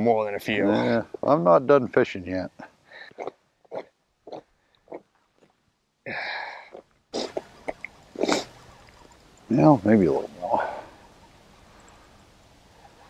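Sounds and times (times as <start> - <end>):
man's noisy throat sound: 3.1 - 5.1, 6.1 - 8.6.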